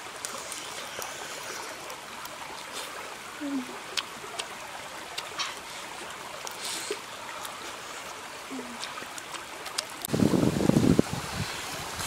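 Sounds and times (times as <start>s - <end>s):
shallow rocky stream rushing: 0.0s - 12.0s
mouth clicks of chewing: 3.9s - 5.7s, 8.5s - 10.1s.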